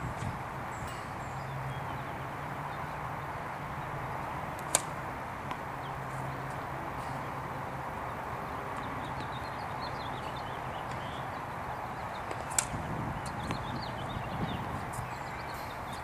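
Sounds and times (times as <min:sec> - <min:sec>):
small birds chirping: 0:00.0 - 0:16.0
tennis racket hitting ball: 0:04.5 - 0:06.6, 0:12.2 - 0:13.7.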